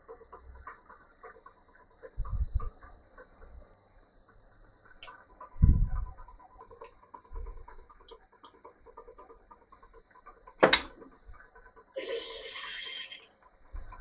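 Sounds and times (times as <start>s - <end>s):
lathe drilling with light ticking: 0.0s - 14.0s.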